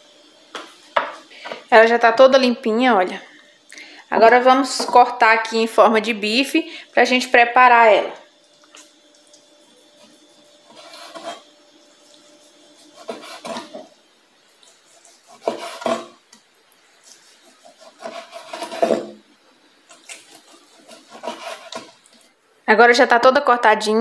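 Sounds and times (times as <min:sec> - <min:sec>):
knife sawing on cutting board: 0:09.9 - 0:11.5, 0:12.4 - 0:13.9, 0:14.7 - 0:16.2, 0:17.0 - 0:19.2, 0:19.9 - 0:22.2.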